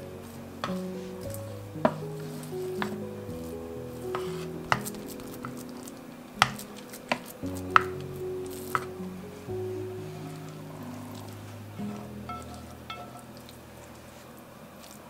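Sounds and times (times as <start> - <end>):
soft instrumental music: 0.0 - 15.0
wooden spoon knocking metal pan: 6.4 - 8.0, 11.9 - 13.4.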